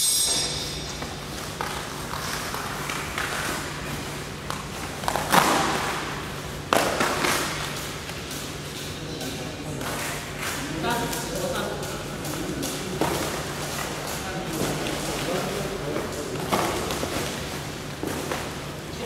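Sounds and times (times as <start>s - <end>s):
low hum: 0.0s - 4.6s.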